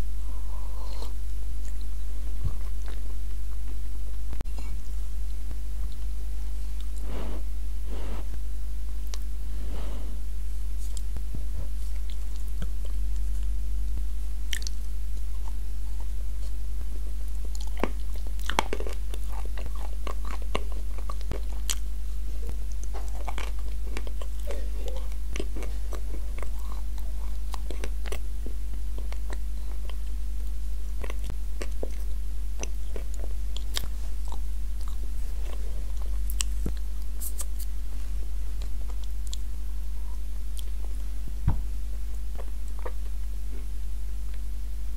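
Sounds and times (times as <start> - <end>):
low electrical hum: 0.0 - 44.9
cookie crunching: 17.2 - 37.8
wet mouth clicks: 36.3 - 37.7.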